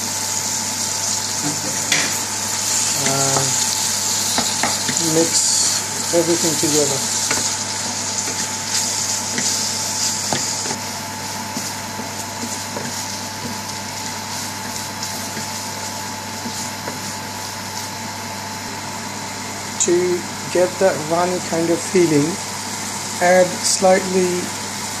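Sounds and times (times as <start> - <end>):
food sizzling in frying pan: 0.0 - 19.8
wooden spoon scraping pan: 1.7 - 18.0.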